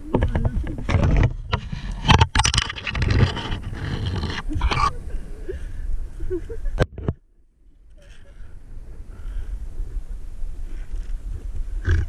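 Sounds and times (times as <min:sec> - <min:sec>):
scraping and rustling: 0:00.0 - 0:05.0.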